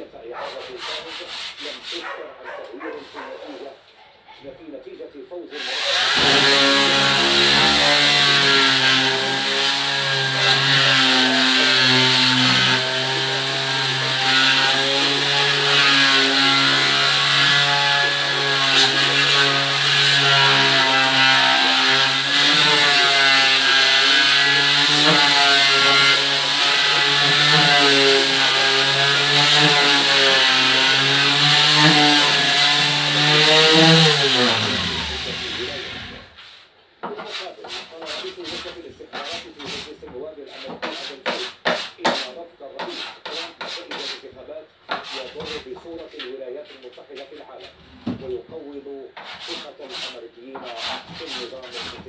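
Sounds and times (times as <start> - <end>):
electric orbital sander on wood: 5.6 - 36.4.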